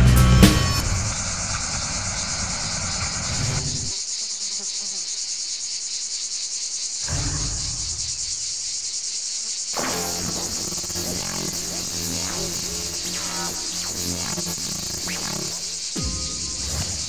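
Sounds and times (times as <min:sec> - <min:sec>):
insects chirping: 0:00.6 - 0:17.0.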